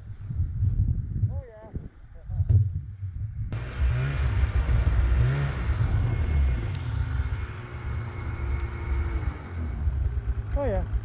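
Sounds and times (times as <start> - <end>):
snowmobile engine running: 3.6 - 11.0.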